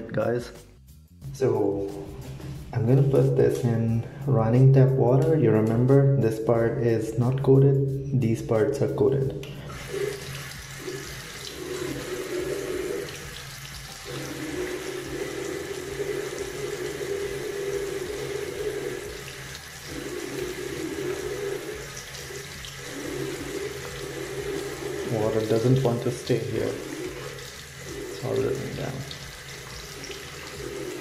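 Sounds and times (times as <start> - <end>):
tap water running into a sink: 9.4 - 31.0.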